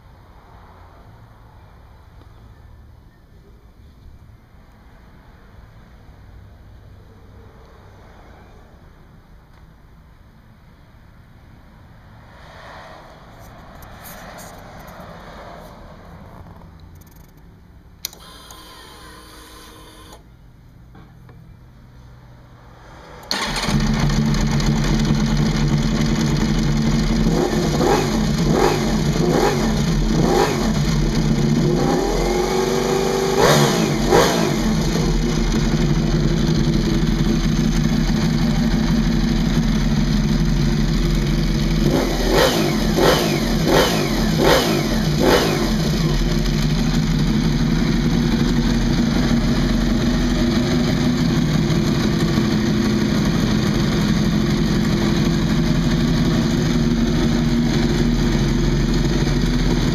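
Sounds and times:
engine throttle blips: 23.2s - 59.9s
motorcycle engine idling: 23.3s - 31.8s, 33.9s - 59.9s.

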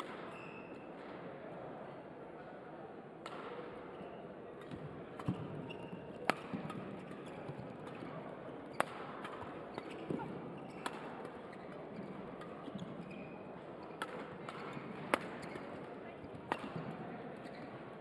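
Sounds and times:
rackets striking shuttlecock: 0.0s - 0.4s, 4.6s - 8.1s, 8.8s - 11.4s, 14.0s - 17.0s.

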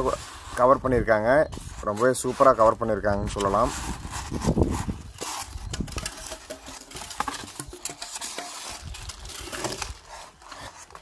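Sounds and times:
packaging rustling: 3.0s - 11.0s.

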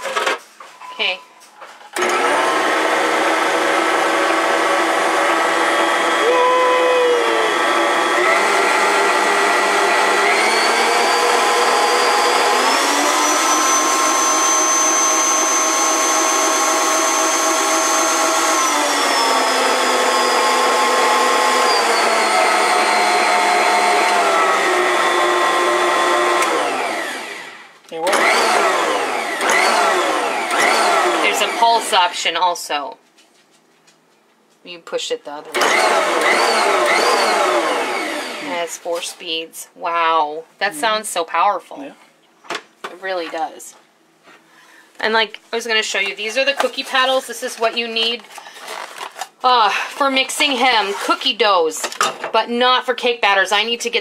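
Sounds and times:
mixer motor whining: 1.9s - 32.1s, 35.5s - 38.5s.

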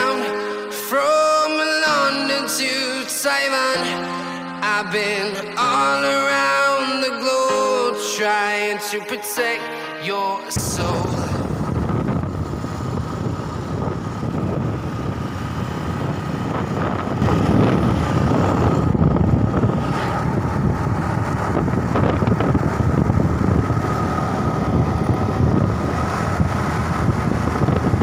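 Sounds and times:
motorcycle engine and road noise: 10.6s - 28.0s
wind rushing over microphone: 10.6s - 28.0s.

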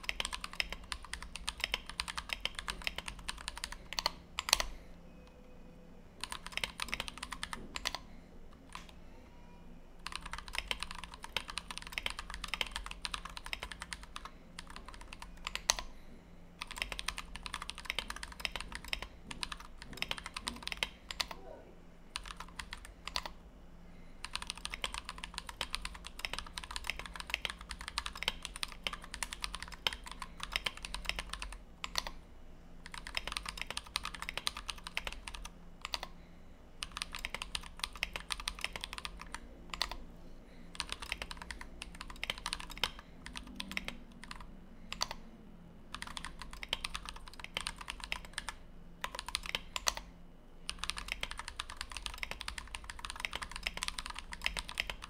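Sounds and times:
fast typing on mechanical keyboard: 0.0s - 4.7s, 6.2s - 8.0s, 10.0s - 15.9s, 16.6s - 21.4s, 22.2s - 23.4s, 24.2s - 32.2s, 32.8s - 36.2s, 36.8s - 40.0s, 40.7s - 45.2s, 45.9s - 50.1s, 50.7s - 55.0s.

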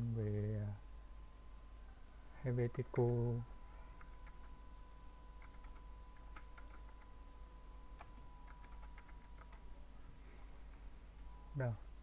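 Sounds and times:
faint steady tone: 0.0s - 12.0s
computer keyboard keys clicking: 3.9s - 4.6s, 5.4s - 7.2s, 7.9s - 9.7s.

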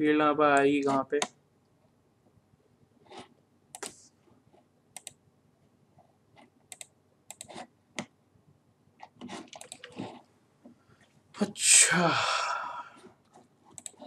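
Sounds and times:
mouse and keyboard clicks: 3.2s - 4.0s, 5.0s - 5.2s, 6.4s - 8.1s, 9.0s - 10.2s, 13.7s - 14.0s.

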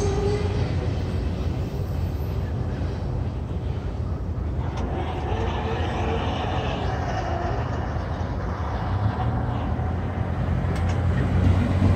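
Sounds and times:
freight train rumble: 0.0s - 11.9s.

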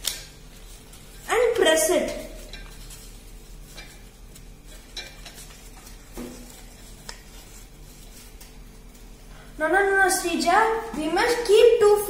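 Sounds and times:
steady low hum: 0.0s - 12.0s
paper rustling and crinkling: 0.3s - 9.2s.

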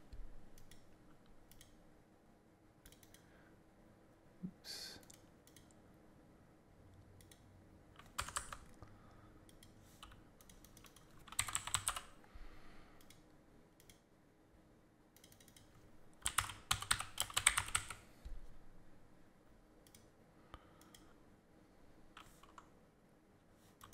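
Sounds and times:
typing on computer keyboard: 8.0s - 8.8s, 9.5s - 12.2s, 15.2s - 18.0s.

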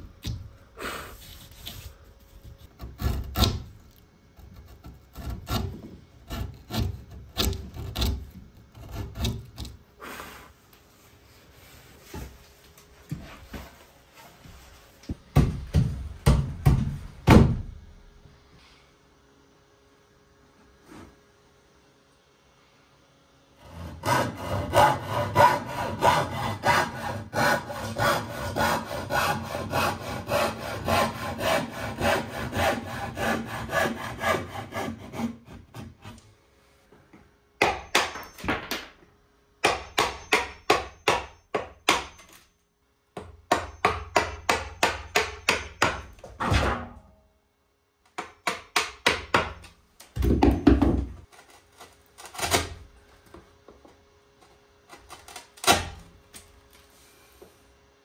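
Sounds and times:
hand saw cutting wood: 2.6s - 3.7s, 4.4s - 9.8s, 23.6s - 36.2s
hammer striking chisel into wood: 37.6s - 38.8s, 39.6s - 42.2s, 43.2s - 46.1s, 48.2s - 49.6s.

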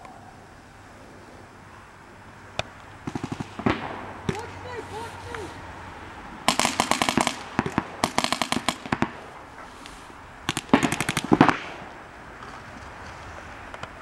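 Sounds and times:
paintball markers firing rapidly: 3.1s - 4.5s, 6.5s - 9.2s, 10.5s - 11.8s.

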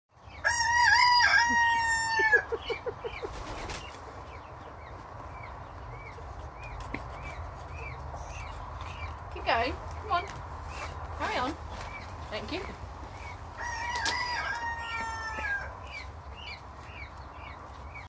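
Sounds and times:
rooster crowing: 0.4s - 2.6s, 13.6s - 15.8s.

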